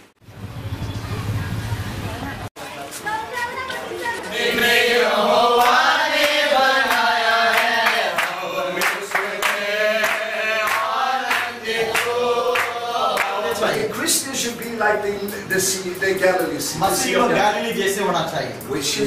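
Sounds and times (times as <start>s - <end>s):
group of people singing: 4.2s - 14.0s
hand claps: 5.6s - 13.4s.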